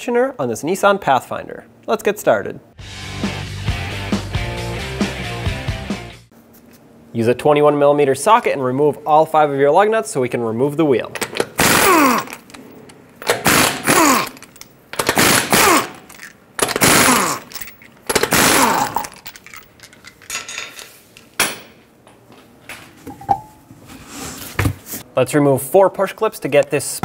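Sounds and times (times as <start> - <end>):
air impact wrench bursts: 11.3 - 12.6, 13.2 - 19.2.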